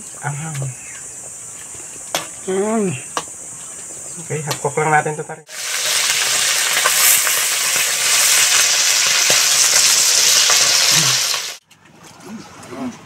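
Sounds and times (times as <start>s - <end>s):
fish sizzling in hot oil: 5.5s - 11.6s.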